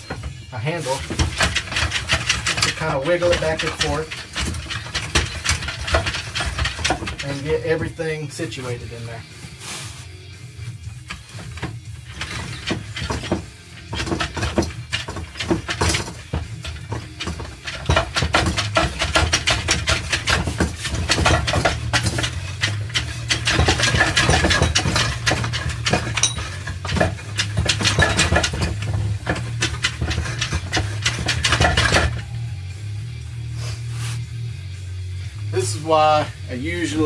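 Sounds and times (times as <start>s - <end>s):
metallic clicking of gear parts: 11.0s - 32.2s.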